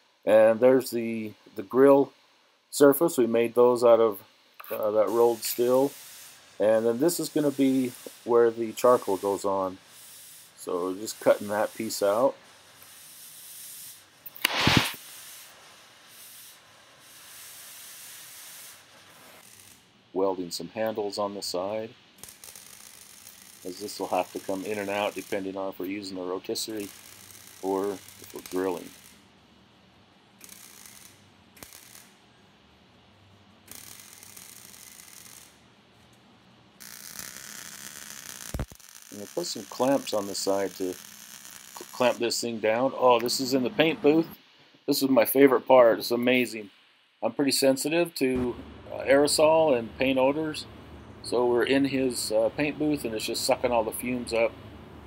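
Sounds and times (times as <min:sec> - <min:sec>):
welder arc crackling: 0:03.2 - 0:29.4, 0:30.4 - 0:32.2, 0:33.6 - 0:35.7, 0:36.8 - 0:44.3
cutting torch hissing: 0:03.6 - 0:19.9, 0:21.3 - 0:29.2, 0:36.8 - 0:44.5
loud short burst of noise: 0:14.4 - 0:15.0.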